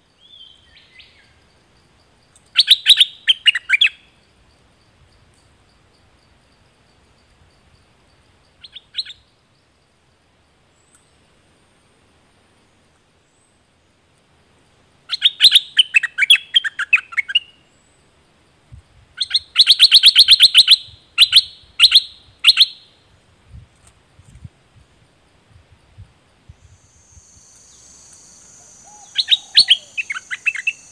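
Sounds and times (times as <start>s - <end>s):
bird singing: 0.0s - 11.3s, 14.6s - 23.0s, 26.6s - 30.9s.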